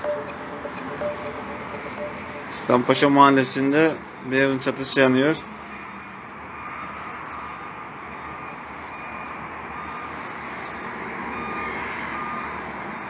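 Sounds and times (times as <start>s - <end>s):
faint short beeps: 0.0s - 2.7s
distant town traffic hiss: 0.0s - 13.0s.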